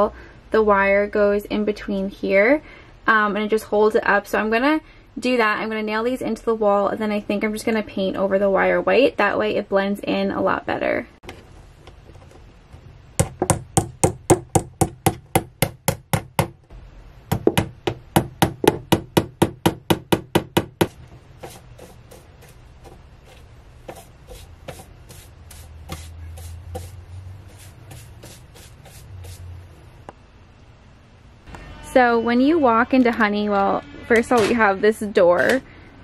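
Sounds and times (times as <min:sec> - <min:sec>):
paintbrush strokes: 0:21.4 - 0:29.6.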